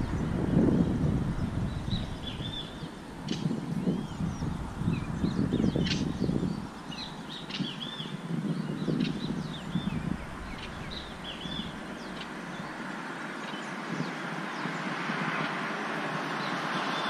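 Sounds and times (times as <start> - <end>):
low rumble: 0.0 - 7.8, 8.4 - 12.8
birds chirping: 0.0 - 15.7.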